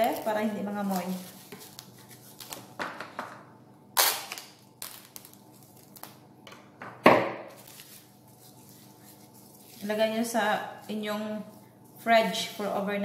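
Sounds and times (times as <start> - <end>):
plastic cling wrap crackling: 0.0 - 2.8, 4.0 - 6.3, 7.5 - 10.3.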